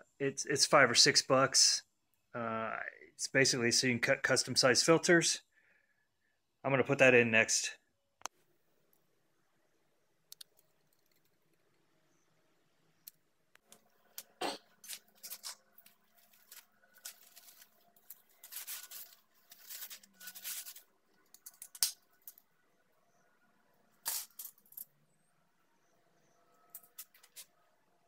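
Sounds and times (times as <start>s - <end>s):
faint clicks: 10.3s - 11.8s
plastic bag crinkling: 14.2s - 21.6s.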